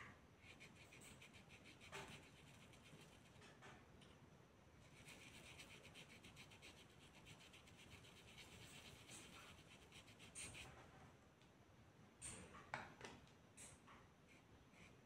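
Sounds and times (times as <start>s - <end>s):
paintbrush scratching on cloth: 0.4s - 3.4s, 4.8s - 10.7s.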